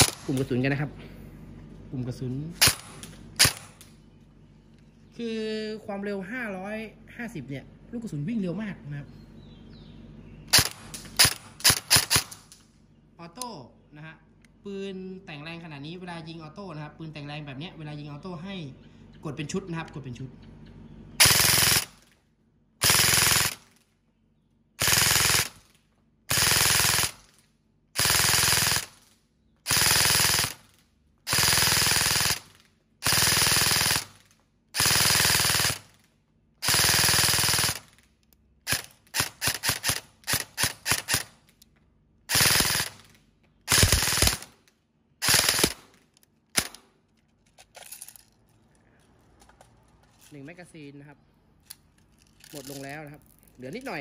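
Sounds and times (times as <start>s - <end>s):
airsoft rifle full auto bursts: 0.0s - 0.3s, 2.6s - 3.8s, 10.5s - 12.6s, 21.2s - 22.1s, 22.8s - 23.8s, 24.8s - 27.4s, 28.0s - 41.5s, 42.3s - 46.8s.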